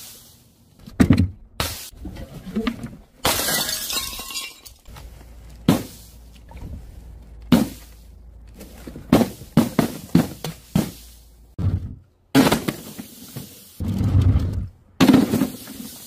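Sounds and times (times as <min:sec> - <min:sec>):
glass shattering: 0:03.2 - 0:04.9.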